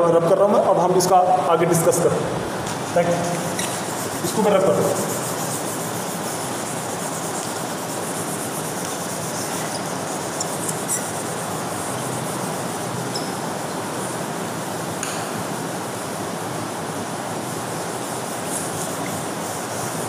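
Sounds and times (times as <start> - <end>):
duster rubbing on whiteboard: 2.7 - 13.1, 17.6 - 20.0.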